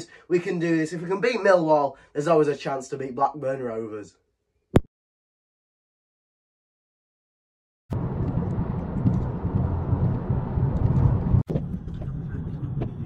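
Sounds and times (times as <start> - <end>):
car road and engine rumble: 7.9 - 13.0.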